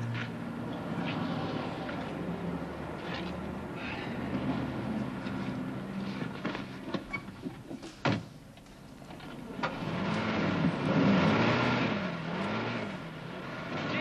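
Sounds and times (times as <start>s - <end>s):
car engine revving: 9.6s - 14.0s.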